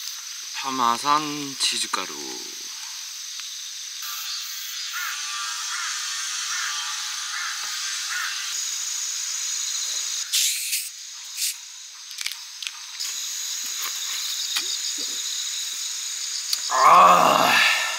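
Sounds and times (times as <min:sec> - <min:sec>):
insects chirring: 0:00.0 - 0:17.9
bottle cap fizzing hiss: 0:10.3 - 0:15.2.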